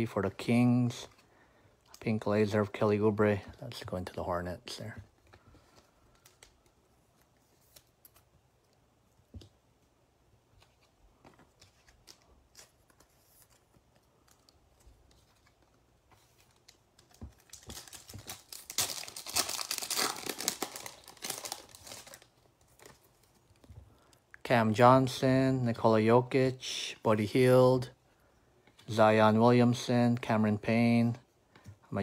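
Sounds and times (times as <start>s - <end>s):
card pack wrapper tearing: 17.4s - 23.0s.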